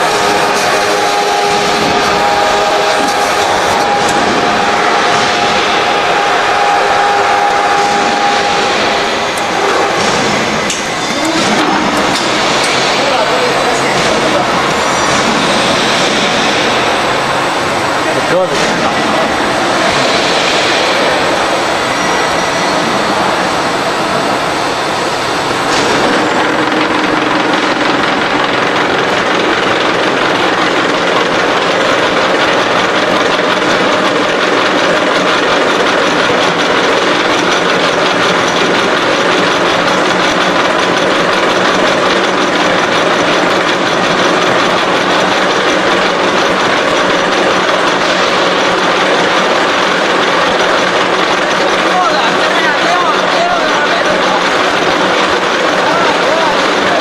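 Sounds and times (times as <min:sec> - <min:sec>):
machine cutting steel: 0:00.0 - 0:57.0.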